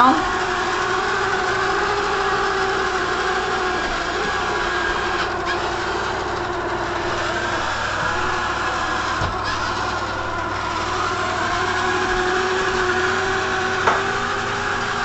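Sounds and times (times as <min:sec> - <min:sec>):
robot vacuum motor hum and whine: 0:00.0 - 0:15.0.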